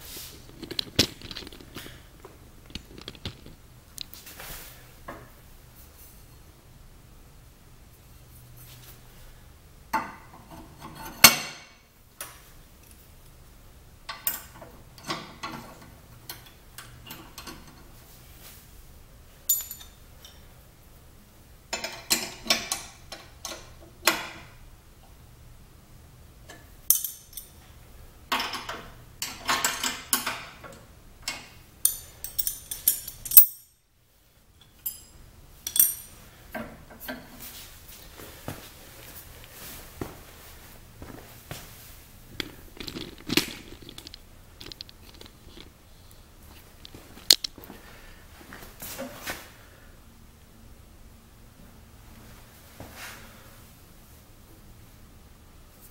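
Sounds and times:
metal clips rattling: 0.6 - 2.0, 31.3 - 33.7
steel parts clinking: 19.5 - 20.4, 26.9 - 27.6, 31.3 - 33.9, 34.6 - 36.2, 42.4 - 45.7.

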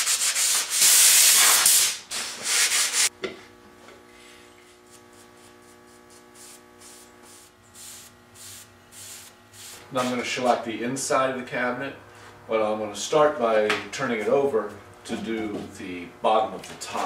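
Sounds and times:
sandpaper rubbing on wood: 0.0 - 3.1, 4.8 - 10.2
faint steady hum: 3.2 - 17.0.

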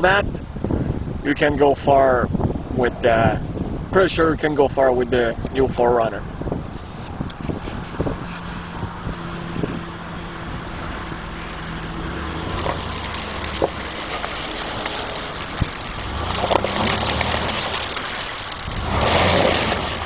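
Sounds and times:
wind on microphone: 0.0 - 20.0
engine running at low speed: 6.1 - 20.0
tyres sloshing through mud: 6.8 - 20.0
stones knocking under tyres: 12.4 - 20.0.

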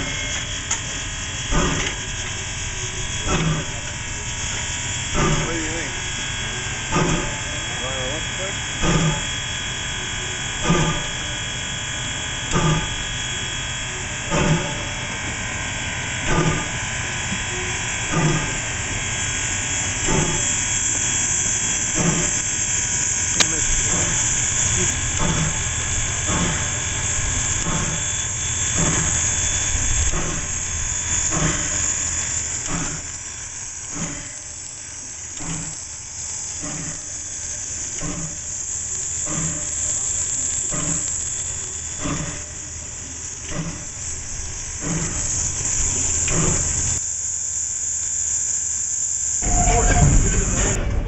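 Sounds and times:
steam hissing: 0.0 - 9.4, 10.3 - 15.0, 16.2 - 51.0
regular machinery beat: 1.5 - 6.0, 6.9 - 7.8, 8.8 - 9.3, 23.3 - 33.2.

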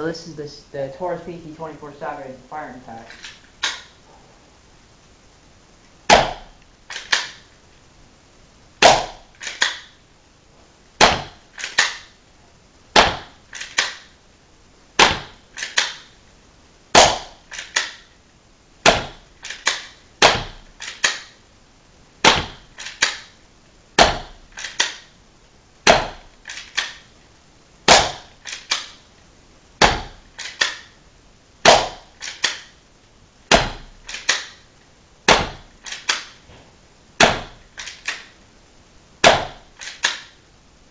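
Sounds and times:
airsoft pistol shots: 6.1 - 7.5, 8.8 - 10.0, 11.0 - 12.1, 13.0 - 14.1, 15.0 - 16.1, 16.9 - 18.1, 18.8 - 21.4, 22.2 - 23.4, 24.0 - 25.0, 25.8 - 27.0, 27.9 - 29.0, 29.8 - 31.0, 31.6 - 32.7, 33.5 - 34.6, 35.3 - 36.4, 37.2 - 38.2, 39.2 - 40.4.

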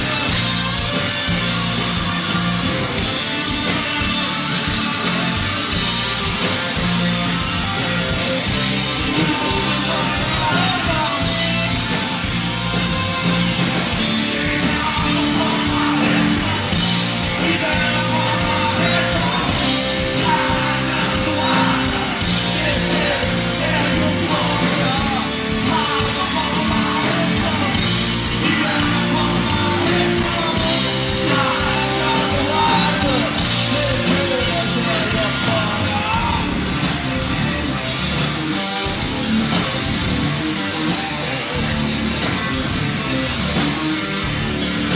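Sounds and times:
bass guitar: 0.0 - 44.9
electric guitars: 0.0 - 44.9
keyboards: 0.0 - 44.9
person singing: 8.3 - 12.2, 13.9 - 36.7.

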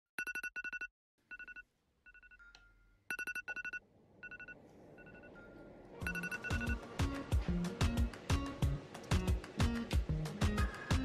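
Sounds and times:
electronic alarm beeping: 3.1 - 6.8.

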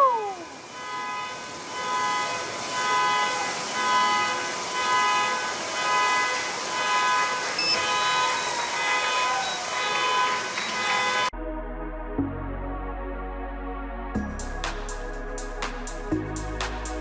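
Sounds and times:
car horns blaring: 0.6 - 11.3.

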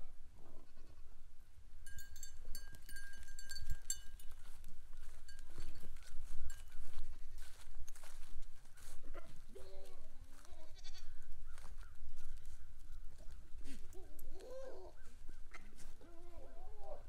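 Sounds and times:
goat bleating: 0.4 - 1.0, 9.5 - 11.2.

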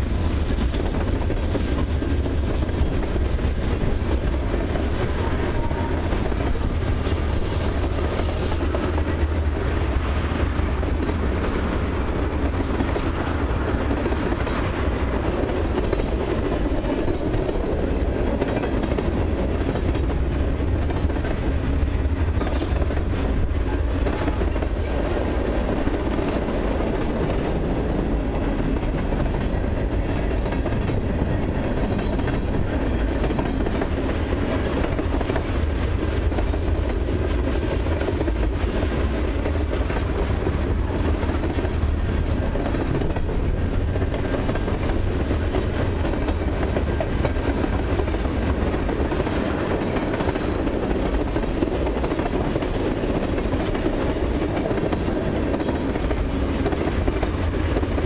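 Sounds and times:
train wheels rumbling on rail: 0.0 - 58.0.

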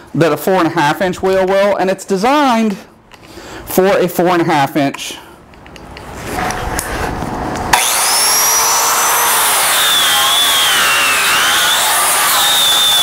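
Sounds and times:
angle grinder grinding steel: 7.7 - 13.0.

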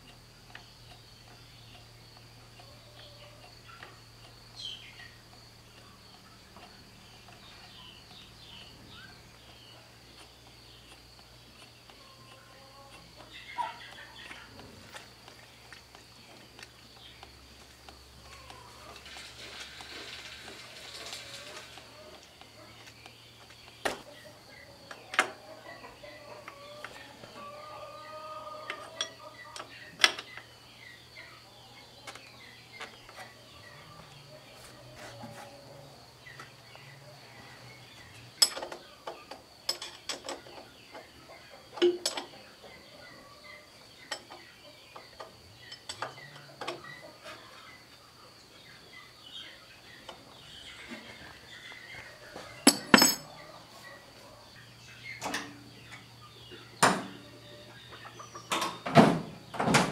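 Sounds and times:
metallic clinks and knocks of tools: 38.4 - 38.8, 52.6 - 53.3.

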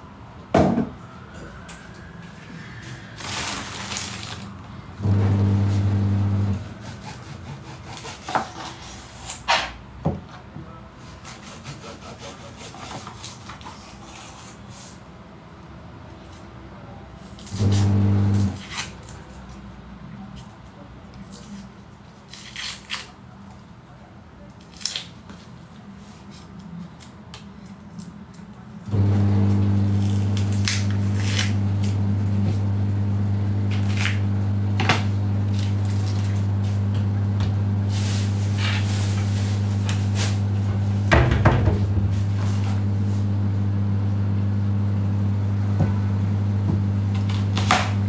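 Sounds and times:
low electrical hum: 15.3 - 48.0
onion skin crackling: 22.2 - 23.2, 30.0 - 32.0.

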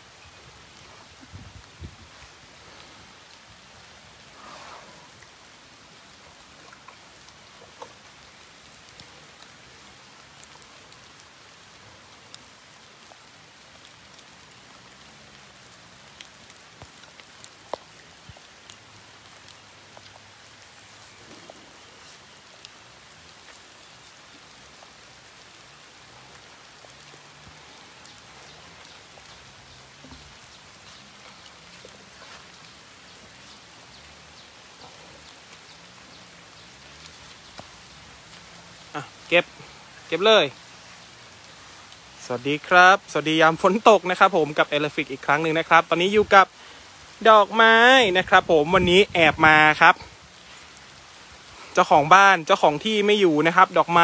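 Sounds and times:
raindrops ticking close by: 0.0 - 54.0
steady rain falling: 0.0 - 54.0.

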